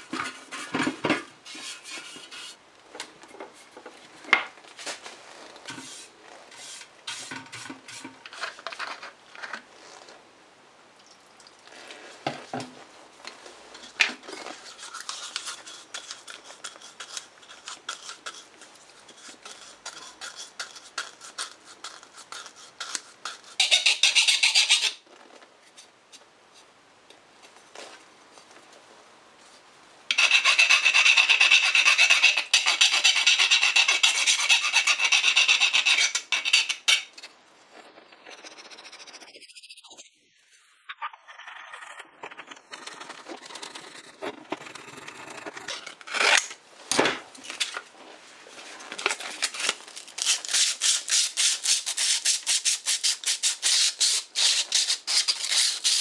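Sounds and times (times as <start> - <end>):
paintbrush scraping and dabbing metal: 0.1 - 2.6, 4.8 - 9.0, 13.8 - 25.0.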